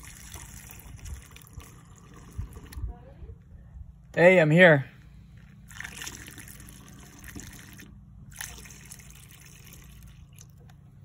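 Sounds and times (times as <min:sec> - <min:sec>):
liquid trickling through a funnel: 0:00.0 - 0:02.9, 0:05.4 - 0:11.0.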